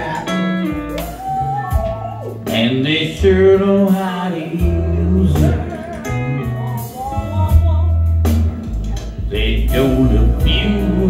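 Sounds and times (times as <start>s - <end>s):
guitar: 0.0s - 11.0s
heavy bass line: 0.0s - 11.0s
man singing into microphone: 2.5s - 7.6s, 9.0s - 11.0s.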